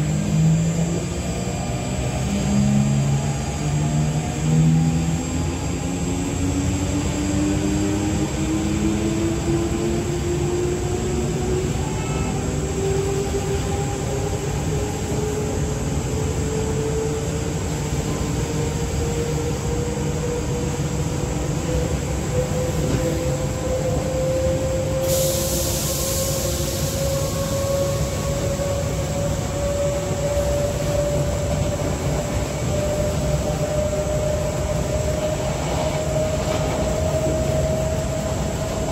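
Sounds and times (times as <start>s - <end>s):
train running rumble: 0.0s - 38.9s
high hiss: 25.0s - 27.6s.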